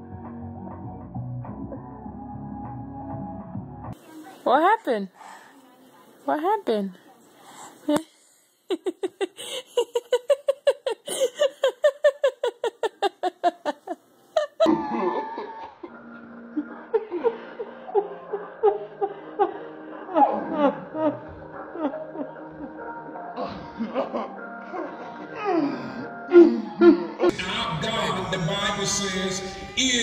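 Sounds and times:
background music: 0.0 - 5.5, 8.9 - 30.0
high-pitched rhythmic laughter: 8.7 - 25.4.

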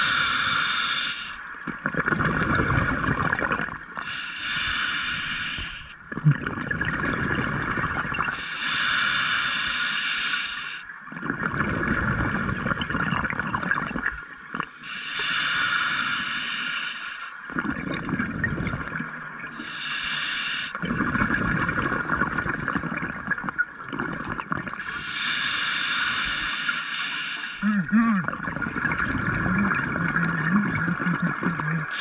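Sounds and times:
regulator hissing inhalation: 0.0 - 1.4, 4.0 - 6.0, 8.4 - 10.9, 14.8 - 17.4, 19.6 - 20.8, 24.8 - 27.8
bubbling exhalation: 1.7 - 4.0, 6.0 - 8.3, 11.1 - 14.7, 17.5 - 19.0, 20.8 - 25.0, 27.6 - 32.0.

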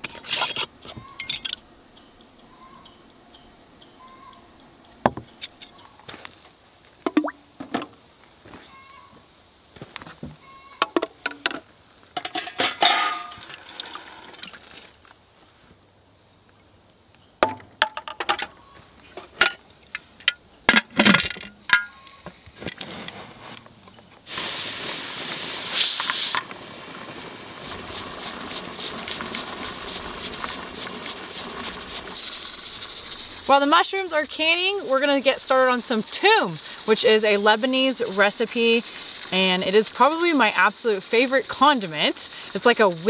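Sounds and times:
glass jars clinking: 0.1 - 1.6
steam hissing from pressure canner: 24.2 - 43.0.

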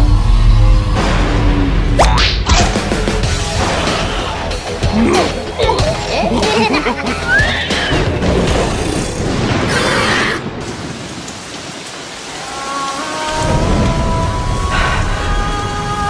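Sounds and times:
heavy rain: 2.6 - 16.0
thunder rumble: 7.8 - 16.0.

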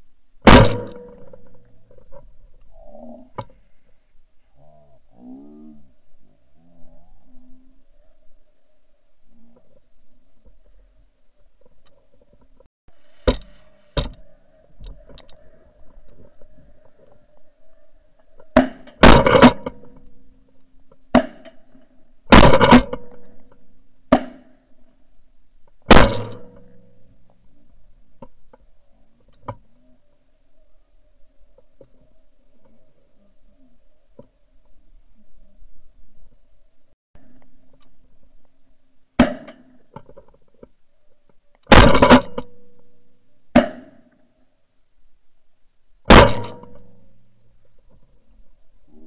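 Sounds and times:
shotgun shots: 0.4 - 1.4.

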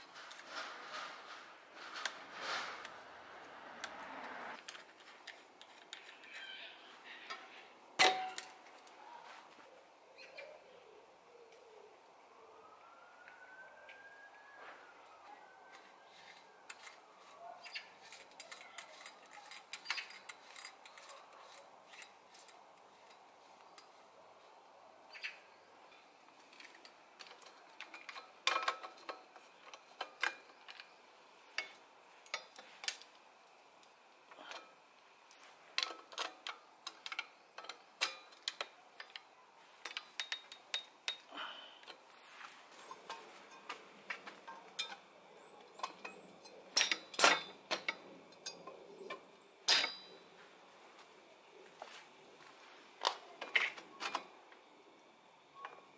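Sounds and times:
bicycle parts clicking and tapping: 4.6 - 6.6, 25.9 - 42.0, 42.8 - 45.0.

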